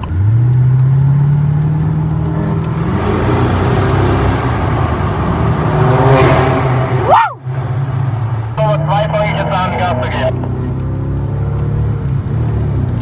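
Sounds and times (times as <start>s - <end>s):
car engine accelerating hard: 0.0s - 13.0s
road noise: 0.0s - 13.0s.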